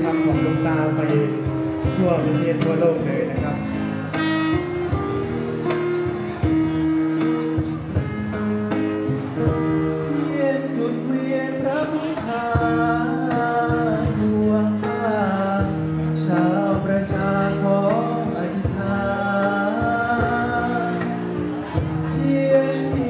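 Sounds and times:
man singing into microphone: 0.0 - 3.8, 9.4 - 23.0
acoustic guitar: 0.0 - 23.0
cajon beat: 0.0 - 23.0.

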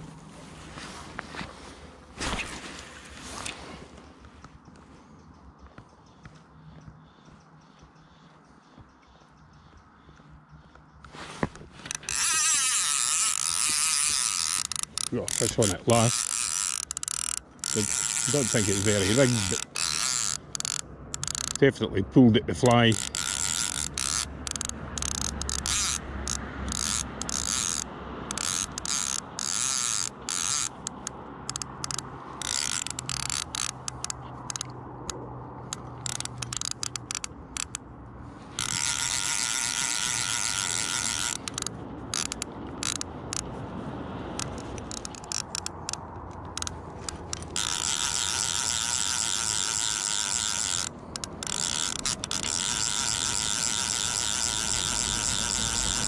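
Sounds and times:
fishing reel ratchet buzzing: 11.8 - 21.8, 22.6 - 37.8, 38.5 - 43.5, 44.3 - 56.0.

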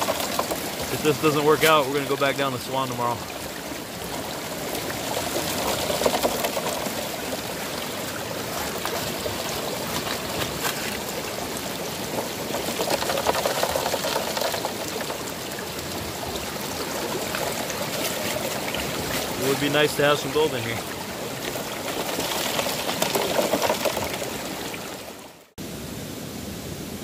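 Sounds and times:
water running through sluice box: 0.0 - 25.5.

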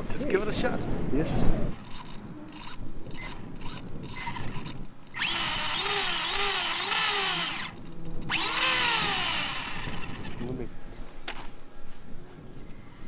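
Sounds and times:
toy truck electric motor whining: 1.8 - 10.6.

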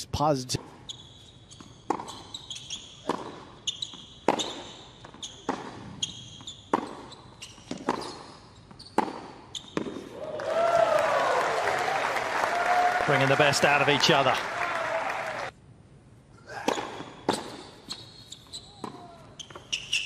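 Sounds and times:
sneakers squeaking: 0.6 - 10.1, 16.6 - 20.0
ball bouncing on court: 1.5 - 10.1
racket hitting ball: 3.0 - 4.7, 5.4 - 6.0, 9.0 - 10.1
crowd cheering and applause: 10.1 - 15.5.

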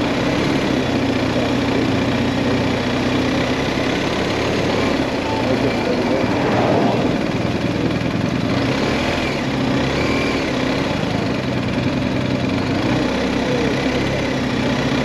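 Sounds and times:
motorcycle engine cruising: 0.0 - 15.0
wind rush on microphone: 6.0 - 7.9.

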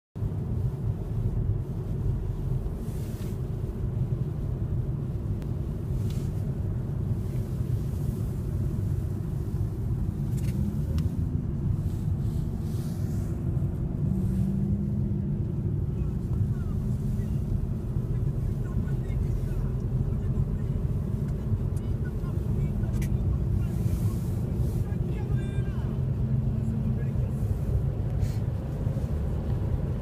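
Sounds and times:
car interior road rumble: 0.2 - 30.0.

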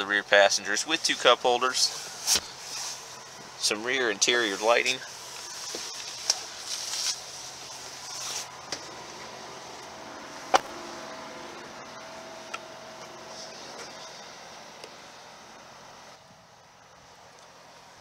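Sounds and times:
clothing and seat rustling: 1.0 - 9.4.

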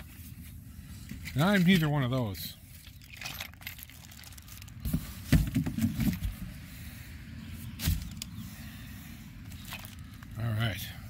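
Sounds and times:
handling knocks and rustles: 0.0 - 6.5, 7.6 - 8.3.

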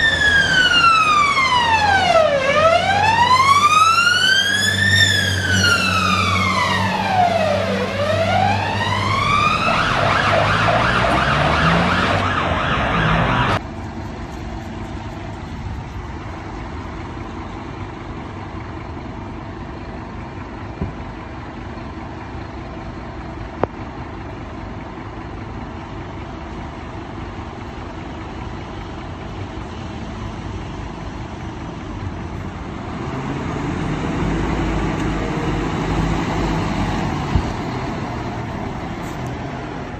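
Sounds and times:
fire engine siren wailing: 0.0 - 13.6, 32.0 - 39.9
diesel truck engine idling: 0.0 - 39.9.

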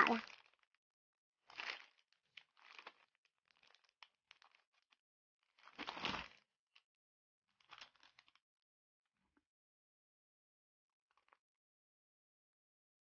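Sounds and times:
plastic bags crinkling: 1.6 - 3.0.

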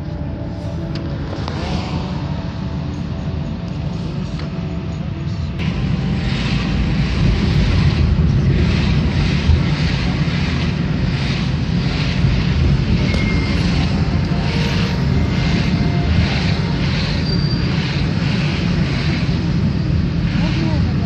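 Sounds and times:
car road and engine rumble: 0.0 - 21.0
regular whooshing pulse: 5.6 - 21.0.

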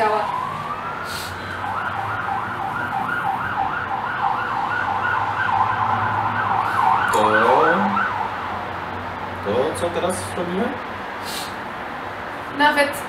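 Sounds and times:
siren yelping: 0.0 - 8.8.

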